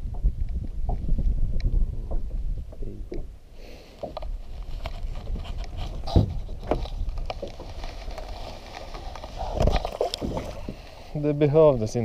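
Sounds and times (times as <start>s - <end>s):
wind rumble on microphone: 0.0s - 3.5s, 4.1s - 12.0s
small waves lapping against boat: 2.1s - 11.5s
handling knocks and rustles: 4.0s - 10.8s.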